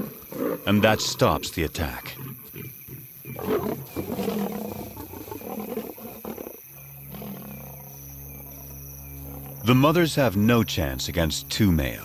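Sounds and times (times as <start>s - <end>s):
lions calling harshly: 0.0s - 7.7s
lions rumbling calls: 0.0s - 9.7s.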